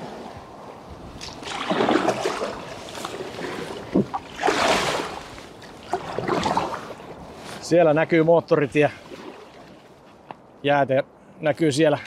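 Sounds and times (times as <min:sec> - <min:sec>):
paddle splashing through water: 0:01.1 - 0:07.6, 0:08.9 - 0:10.0.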